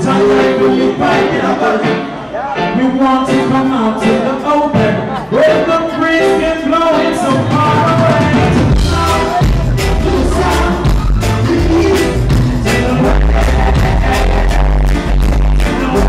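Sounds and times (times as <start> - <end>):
live reggae band: 0.0 - 16.0
person singing: 0.0 - 16.0
heavy bass line: 6.4 - 16.0
steady drum beat: 7.2 - 16.0.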